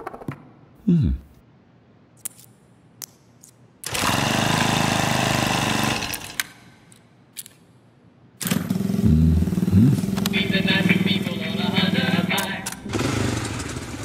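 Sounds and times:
small motorcycle engine running: 3.9s - 6.3s, 8.4s - 12.3s, 12.9s - 14.0s.

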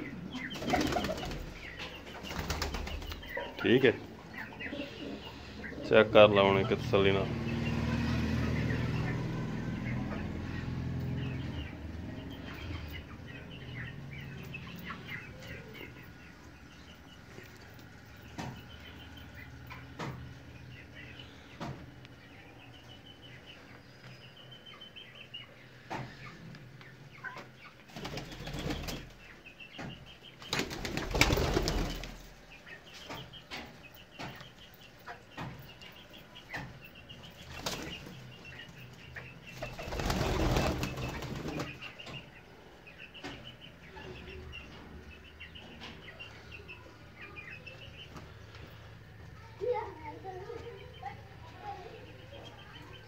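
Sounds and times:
pigeon wings flapping: 0.6s - 1.5s, 2.3s - 3.3s, 30.5s - 32.2s, 39.6s - 41.8s.

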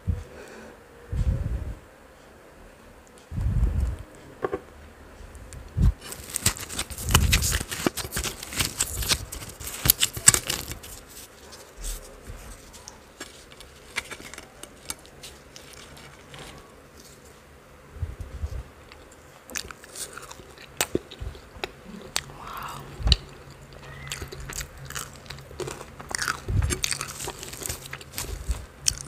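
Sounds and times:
soft low thumps: 1.1s - 1.8s, 3.3s - 4.1s, 5.2s - 6.0s
flatbread tearing and crackling: 6.0s - 17.2s, 23.1s - 29.0s.

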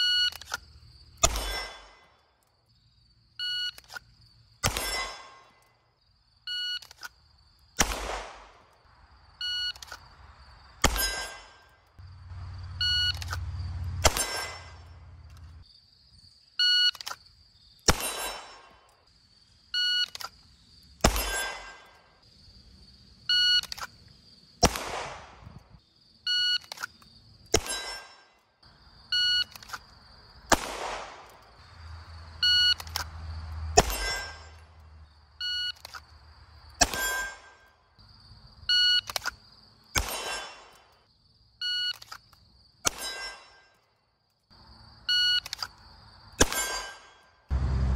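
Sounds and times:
pistol shot: 1.2s - 2.1s, 4.6s - 5.5s, 7.8s - 8.7s, 10.8s - 11.6s, 14.0s - 14.8s, 17.9s - 18.8s, 21.0s - 21.8s, 24.6s - 25.6s, 30.5s - 31.4s, 33.8s - 34.5s, 36.8s - 37.5s, 40.0s - 40.9s, 46.4s - 47.2s
steel target clanging: 1.2s - 2.1s, 4.6s - 5.6s, 10.8s - 11.7s, 14.0s - 15.2s, 33.8s - 34.7s, 36.8s - 37.6s, 42.9s - 43.7s, 46.4s - 47.3s.

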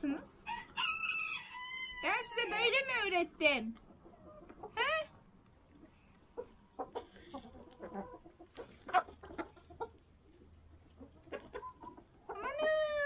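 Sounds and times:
hens clucking: 0.0s - 13.0s
rooster crowing: 0.5s - 2.5s.

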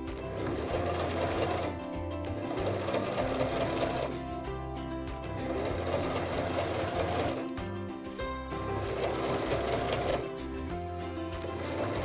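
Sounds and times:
sewing machine running: 0.0s - 4.4s, 5.1s - 7.6s, 8.5s - 10.4s, 11.3s - 12.0s
background music: 0.0s - 12.0s.

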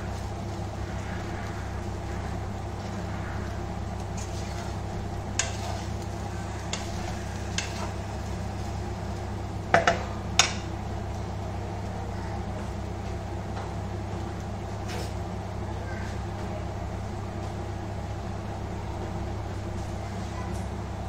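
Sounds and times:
low mechanical hum: 0.0s - 21.0s
spatula scraping wok: 0.1s - 9.1s.

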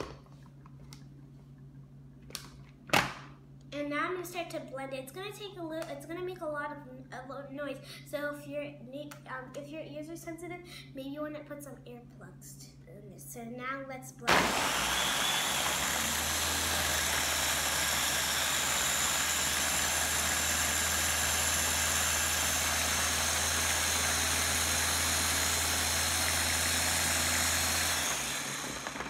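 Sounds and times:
chopper motor whirring: 14.3s - 29.0s.

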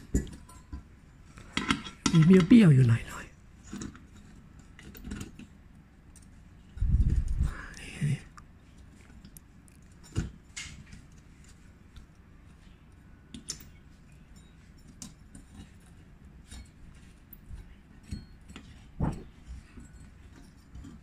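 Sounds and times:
metal parts shifting: 1.4s - 3.0s.

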